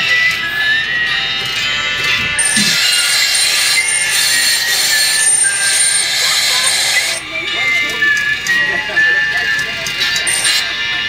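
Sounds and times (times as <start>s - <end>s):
sustained shrill tones: 0.5s - 8.7s, 9.3s - 10.9s
harsh high-pitched screeching: 2.4s - 7.2s, 10.2s - 10.7s.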